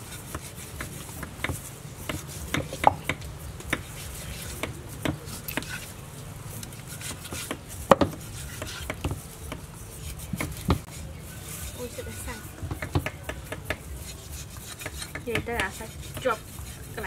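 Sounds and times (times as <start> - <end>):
knife cutting meat: 6.6 - 17.0.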